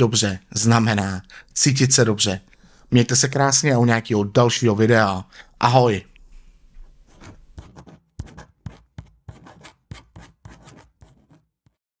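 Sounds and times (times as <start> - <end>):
pen writing on paper: 7.1 - 11.8.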